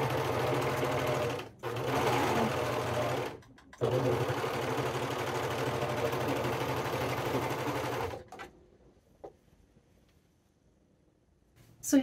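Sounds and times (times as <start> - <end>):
overlock machine stitching: 0.0 - 8.5.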